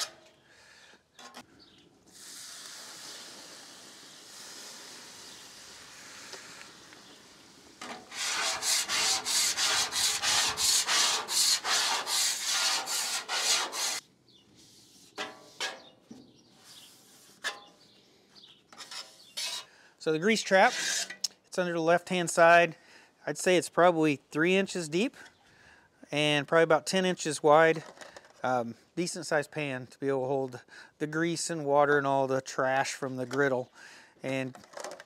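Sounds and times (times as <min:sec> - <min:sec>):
steady hiss: 0:02.0 - 0:07.9
scrubbing strokes on wet griddle: 0:02.1 - 0:14.0.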